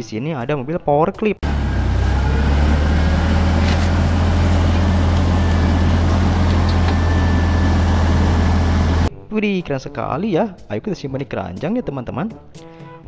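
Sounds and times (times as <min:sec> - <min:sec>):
forklift engine humming: 0:01.4 - 0:09.1.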